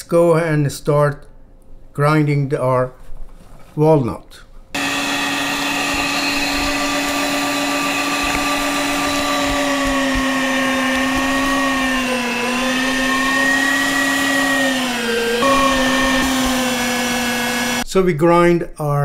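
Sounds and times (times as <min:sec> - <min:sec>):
electric meat grinder running: 0:04.8 - 0:17.8.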